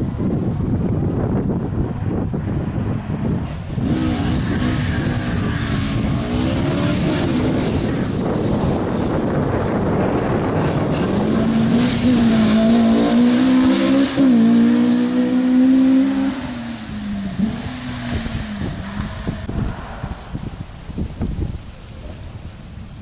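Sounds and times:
car engine revving: 2.8 - 20.6.

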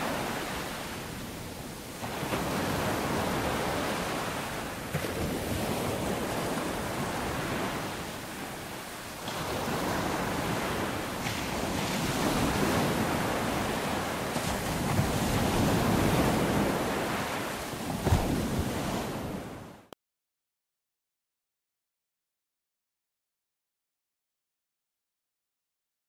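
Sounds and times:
waves breaking: 0.0 - 19.9.

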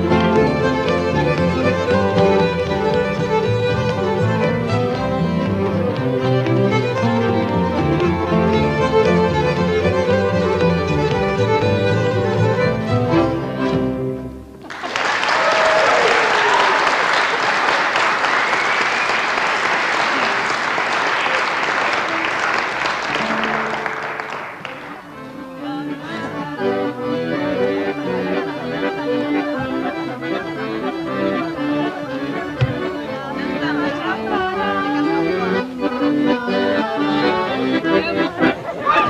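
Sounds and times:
fiddle and guitar folk music: 0.0 - 14.6, 21.9 - 39.0
audience applauding: 14.6 - 25.2.

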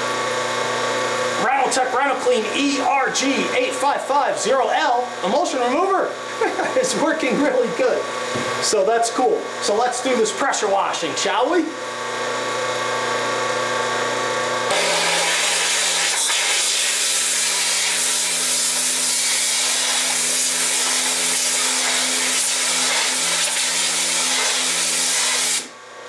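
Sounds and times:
pressure washer pump humming: 0.0 - 25.8
high-pressure water spray hissing: 14.8 - 25.6.

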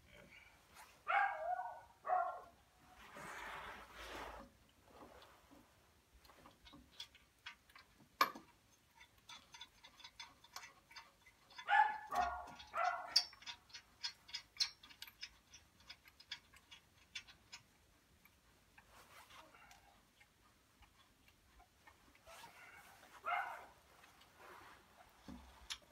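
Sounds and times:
hand tools clicking on metal: 6.7 - 18.3.

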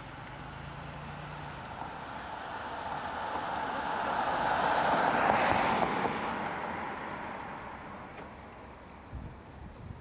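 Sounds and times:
vehicle passing by: 0.0 - 7.7.

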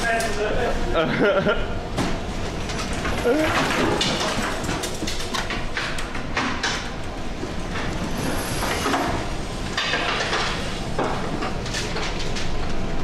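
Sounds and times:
loose objects knocking and rattling: 2.0 - 7.0.

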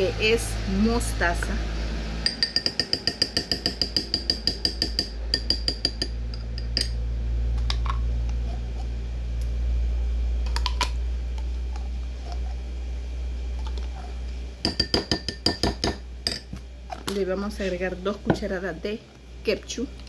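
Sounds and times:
metal spoon clinking ceramic bowl: 2.2 - 7.0, 14.6 - 16.5.

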